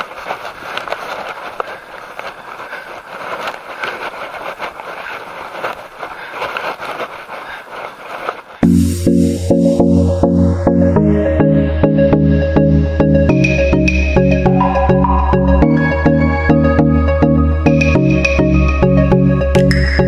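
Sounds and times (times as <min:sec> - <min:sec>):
bike rattles and clicks: 0:00.0 - 0:08.6
bicycle tyre and road noise: 0:00.0 - 0:08.7
electronic music: 0:08.6 - 0:20.0.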